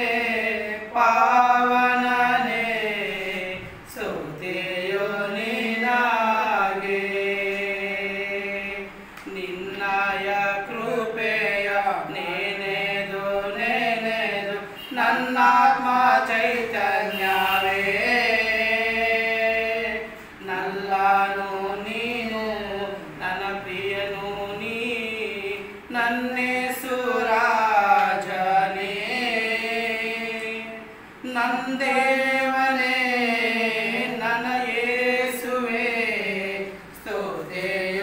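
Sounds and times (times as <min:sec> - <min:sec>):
two men singing a hymn: 0:00.0 - 0:38.0.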